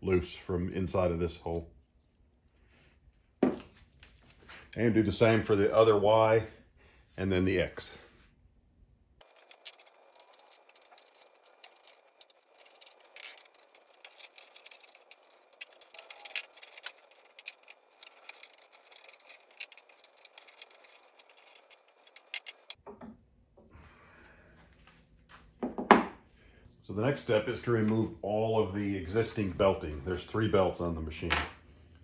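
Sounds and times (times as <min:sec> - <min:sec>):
faint handling noise: 0:09.2 - 0:22.8
metallic clicks of tools and bolts: 0:09.2 - 0:22.8.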